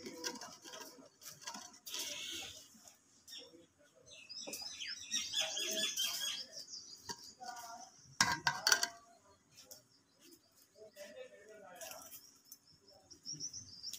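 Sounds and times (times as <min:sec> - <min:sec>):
small birds chirping: 0:01.9 - 0:08.2, 0:08.9 - 0:13.9
ladle knocking on metal pot: 0:08.2 - 0:09.0.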